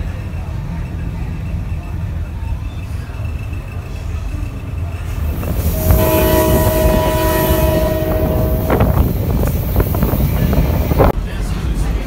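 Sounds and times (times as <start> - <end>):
train rumble and rail noise: 0.0 - 12.0
locomotive air horn: 5.4 - 9.5.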